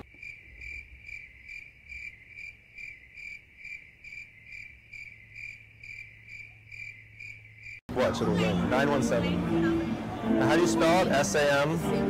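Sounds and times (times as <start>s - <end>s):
cricket chirping: 0.0s - 7.8s.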